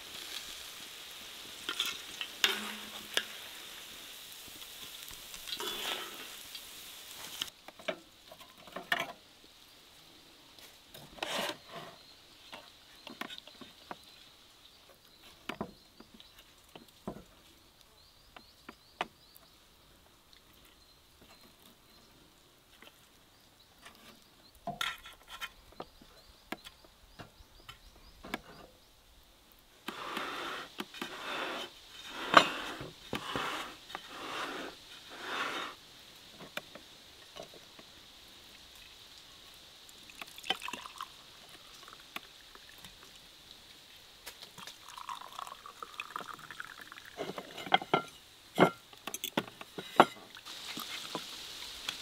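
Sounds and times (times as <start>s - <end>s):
drink pouring into glasses: 40.1s - 42.0s, 44.5s - 47.6s.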